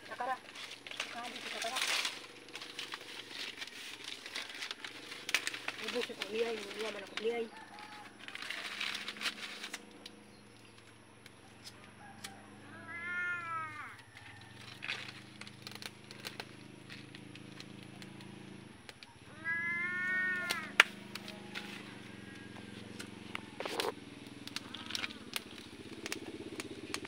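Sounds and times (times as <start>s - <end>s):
cat meowing: 12.6s - 14.0s, 19.3s - 20.8s.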